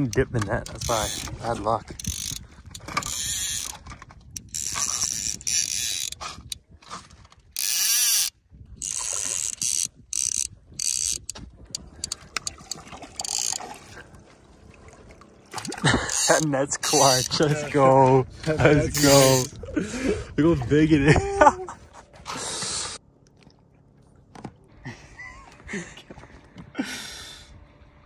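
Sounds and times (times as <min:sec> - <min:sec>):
fishing reel drag ratcheting: 0:00.0 - 0:06.6, 0:07.6 - 0:13.6, 0:15.6 - 0:17.5, 0:18.9 - 0:19.5.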